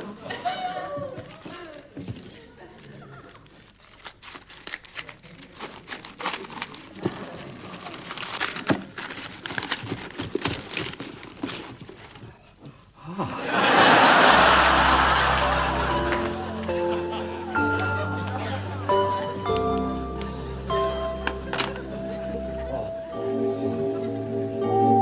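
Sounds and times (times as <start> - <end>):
material crinkling and rustling: 2.7 - 12.7
small clicks and crackles: 2.8 - 12.4.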